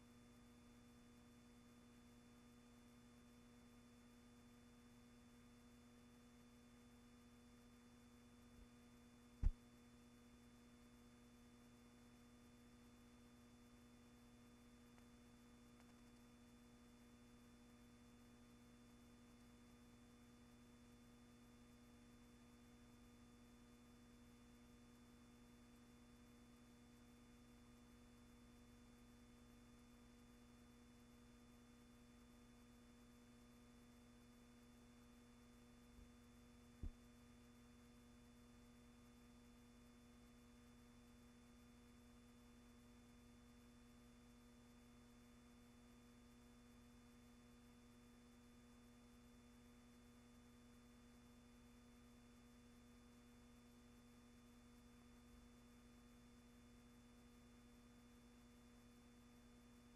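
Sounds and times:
faint electrical hum and hiss: 0.0s - 59.9s.

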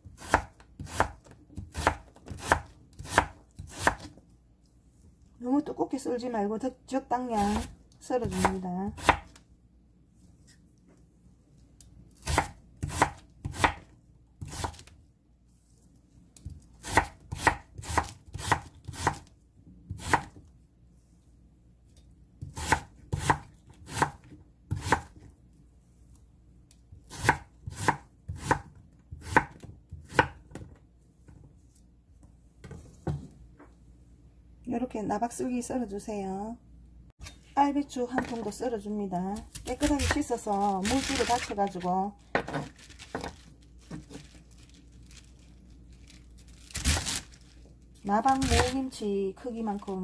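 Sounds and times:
knife chopping on wooden board: 0.2s - 4.2s, 8.3s - 9.3s, 12.2s - 13.8s, 27.1s - 30.6s.

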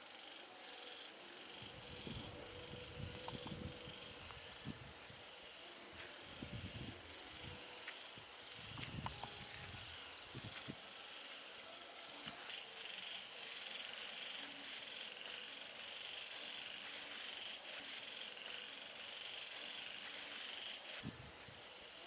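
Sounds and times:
insects calling: 0.0s - 22.0s.

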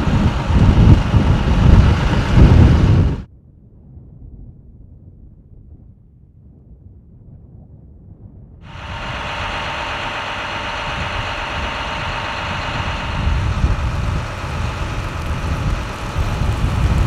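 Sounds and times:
vehicle engine idling: 0.0s - 3.3s, 8.7s - 17.0s
truck driving past: 8.7s - 17.0s.

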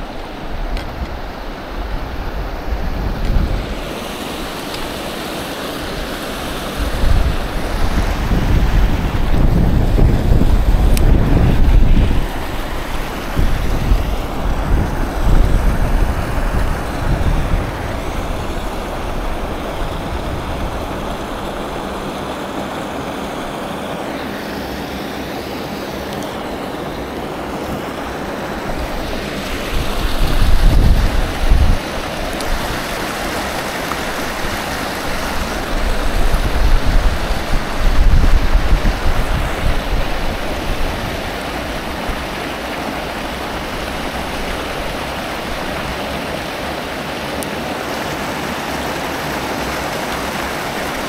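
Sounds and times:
wind buffeting microphone: 0.0s - 3.9s, 5.8s - 22.3s, 27.6s - 33.0s, 33.9s - 42.4s
river water flowing: 0.0s - 51.0s.

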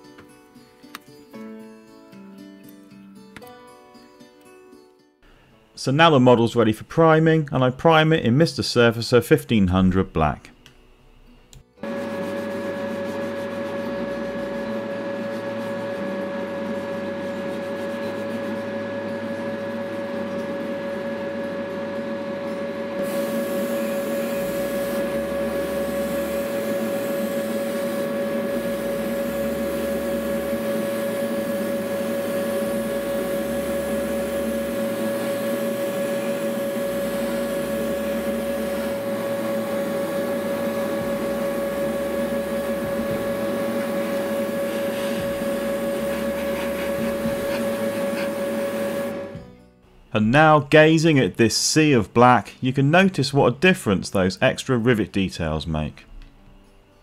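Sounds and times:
small electric motor humming: 11.8s - 49.4s
airbrush spraying hiss: 23.0s - 39.7s, 43.2s - 49.1s.

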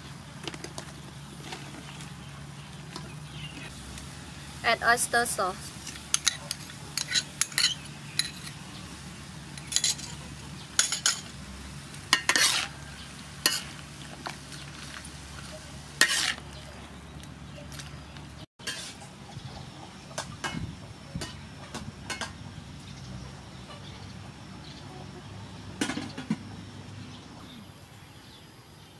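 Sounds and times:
food sizzling in pan: 3.7s - 16.4s
metal ladle scraping wok: 5.7s - 8.8s, 9.5s - 16.5s, 18.6s - 19.0s.

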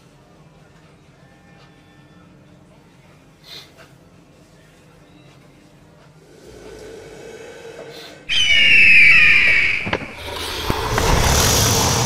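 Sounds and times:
dragon screech: 8.3s - 12.0s
sharp crackles: 8.3s - 12.0s
rush of fire breath: 10.1s - 12.0s.

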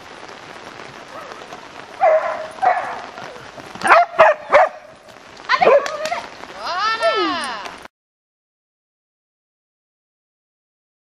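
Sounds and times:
dog barking: 2.0s - 3.2s, 3.8s - 4.9s, 5.6s - 6.0s.

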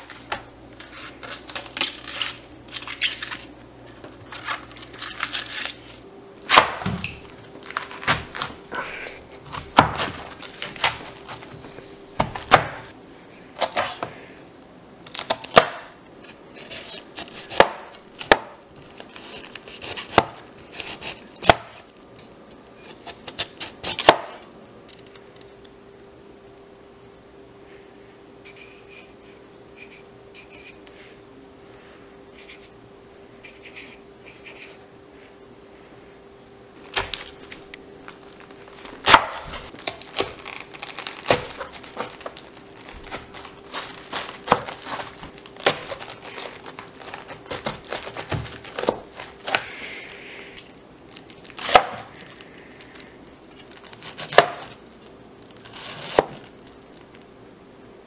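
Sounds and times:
faint steady hum: 0.0s - 58.0s
knife slicing cabbage: 15.1s - 21.8s, 22.8s - 24.4s, 39.0s - 49.8s, 51.6s - 52.1s, 53.8s - 54.8s, 55.6s - 56.5s
faint short scratches: 33.4s - 34.8s.

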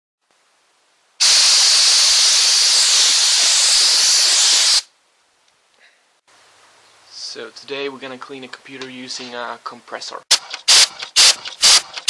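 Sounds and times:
compressed air blow gun hiss: 1.2s - 4.9s, 10.7s - 12.0s.

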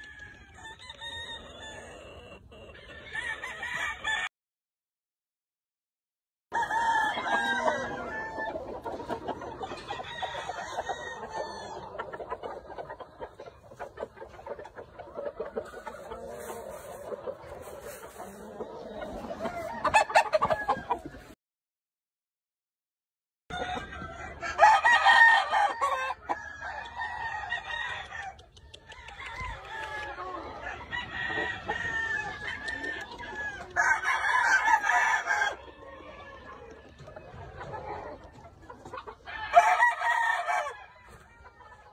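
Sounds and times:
roosters crowing: 0.0s - 4.3s, 6.5s - 12.2s, 17.9s - 21.3s, 23.5s - 36.6s, 39.2s - 41.5s
rooster crowing: 6.5s - 8.5s, 23.5s - 28.4s, 39.3s - 41.0s.

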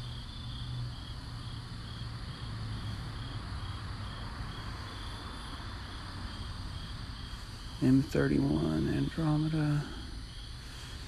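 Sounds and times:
crickets chirping: 0.0s - 11.0s
high insect drone: 0.0s - 11.0s
low steady hum: 0.0s - 11.0s.

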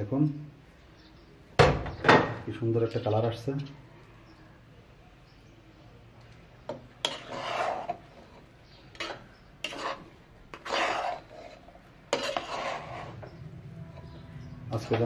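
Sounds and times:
spatula scraping a cooking pot: 6.7s - 15.0s.

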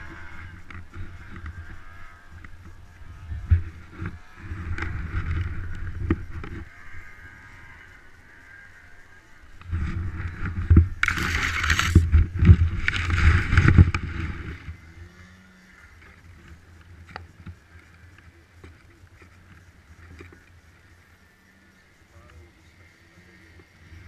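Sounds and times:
camera handling rubbing and scraping: 9.6s - 14.5s.

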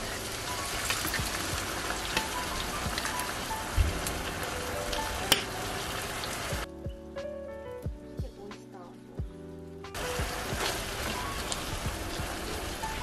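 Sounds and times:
food sizzling in frying pan: 0.0s - 6.7s, 10.0s - 13.0s
soft background music: 0.0s - 13.0s.

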